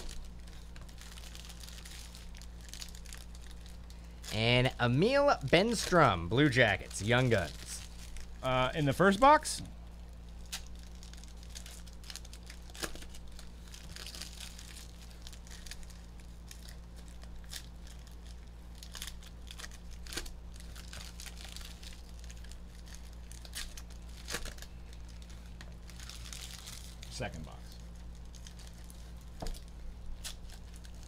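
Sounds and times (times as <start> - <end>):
steady low hum: 0.0 - 31.0
trading cards snapping and rustling: 10.4 - 26.8, 28.3 - 31.0.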